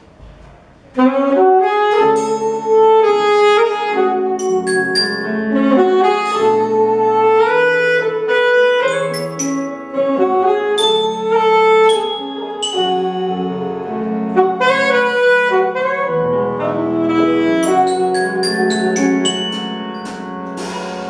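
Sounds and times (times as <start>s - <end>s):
saxophone melody: 0.9s - 21.0s
glockenspiel notes ringing: 4.4s - 6.0s, 8.9s - 9.9s, 10.8s - 13.5s, 17.6s - 20.6s
marimba: 4.4s - 6.4s, 8.8s - 10.1s, 10.8s - 13.5s, 17.6s - 21.0s.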